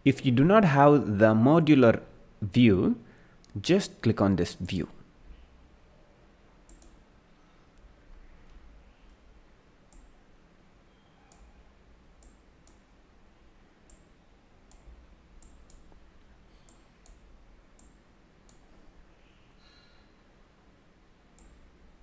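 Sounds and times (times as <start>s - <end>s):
faint low hum: 0.0s - 22.0s
computer mouse clicks: 6.7s - 7.0s, 9.9s - 10.2s, 11.2s - 11.6s, 12.2s - 12.9s, 13.9s - 14.1s, 14.7s - 16.0s, 16.6s - 18.7s, 21.4s - 21.6s.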